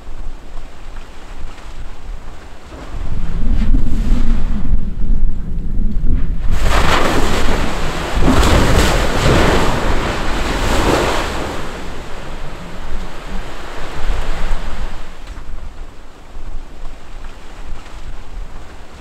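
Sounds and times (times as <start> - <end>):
gushing roar from volcanic vent: 2.7 - 15.6
volcanic explosion blast: 2.8 - 14.0.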